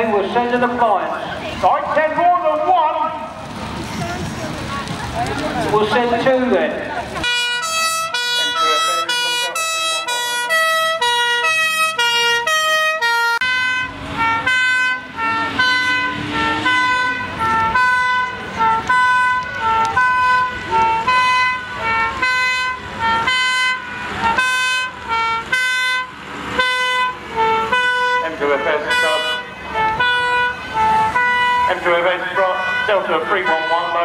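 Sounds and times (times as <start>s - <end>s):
truck engine running: 0.0s - 34.0s
two-tone fire engine horns: 7.1s - 34.0s.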